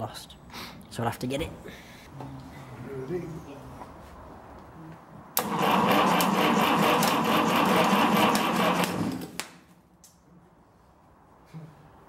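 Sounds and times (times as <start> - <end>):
starter motor cranking: 5.4 - 9.3.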